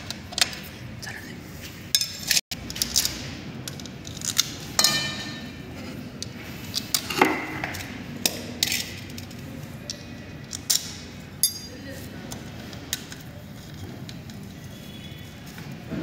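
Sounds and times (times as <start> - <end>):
hand tools clinking on metal: 9.8 - 11.9.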